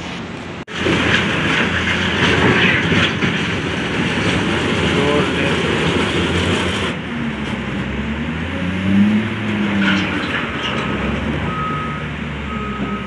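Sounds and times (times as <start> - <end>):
diesel engine under load: 0.0 - 13.0
debris knocking: 0.7 - 6.7
reversing alarm beeping: 11.4 - 13.0.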